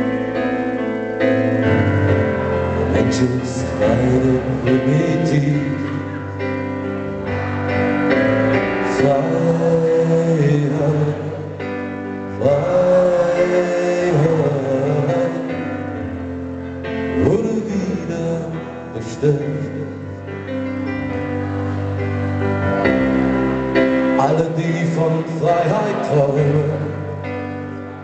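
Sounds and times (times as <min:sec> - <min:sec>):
live band music: 0:00.0 - 0:28.0
man singing into a microphone: 0:02.8 - 0:06.6, 0:08.8 - 0:16.3, 0:17.0 - 0:20.3, 0:24.1 - 0:28.0.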